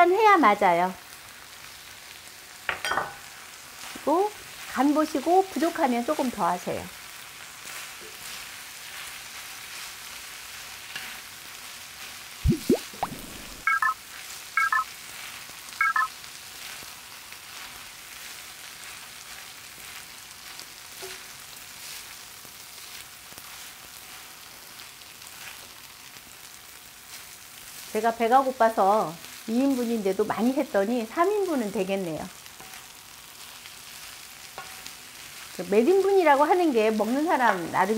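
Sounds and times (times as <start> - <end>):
rice sizzling in a pan: 0.0 - 37.9
short electronic beeps: 12.4 - 14.0, 14.6 - 14.9, 15.8 - 16.1
spatula scraping pan: 32.5 - 35.5.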